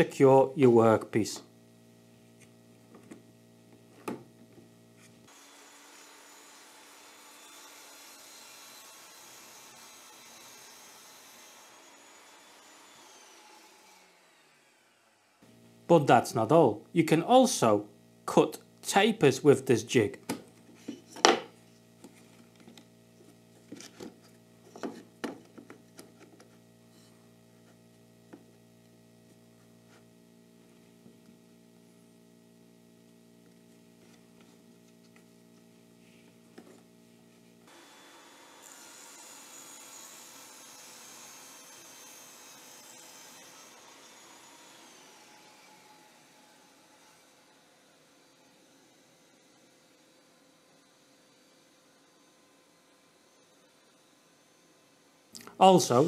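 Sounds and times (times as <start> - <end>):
table saw cutting plywood: 5.2 - 15.4, 37.7 - 50.0.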